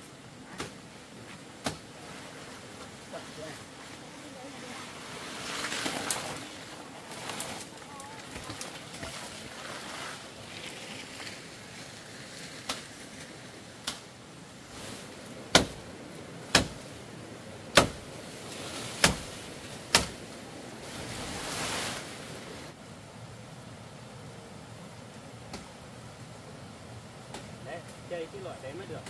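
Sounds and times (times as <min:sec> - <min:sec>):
leaves rustling: 0:00.0 - 0:29.0
blade chopping into wood: 0:15.5 - 0:15.8, 0:16.5 - 0:16.8, 0:17.7 - 0:18.0, 0:19.0 - 0:19.3, 0:19.9 - 0:20.2.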